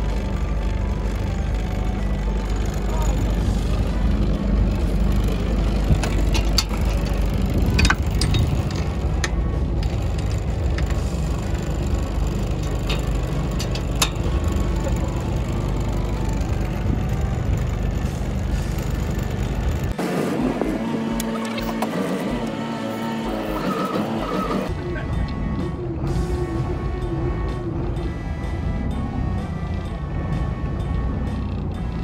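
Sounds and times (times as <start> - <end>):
boat engine running: 0.0 - 32.0
clicks and knocks of gear: 5.8 - 11.2.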